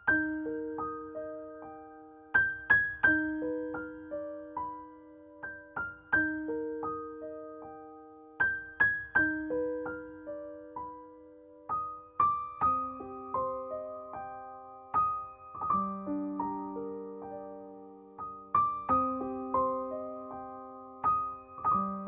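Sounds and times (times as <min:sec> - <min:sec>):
gentle solo piano: 0:00.0 - 0:22.0.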